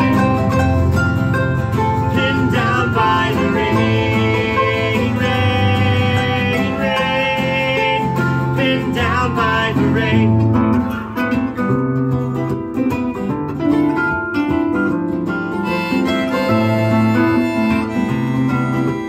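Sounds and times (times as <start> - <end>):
harp: 0.0 - 9.1, 13.6 - 19.0
acoustic guitar: 0.0 - 19.0.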